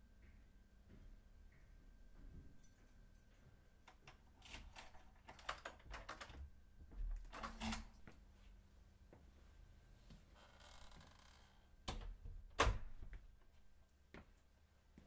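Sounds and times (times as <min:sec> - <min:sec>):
door lock clicking and rattling: 0:03.9 - 0:06.4, 0:07.2 - 0:07.9.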